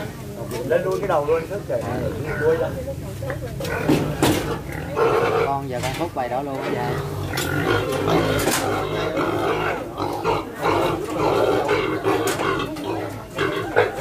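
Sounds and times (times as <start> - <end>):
pig squealing loudly: 4.5 - 5.6, 6.8 - 14.0.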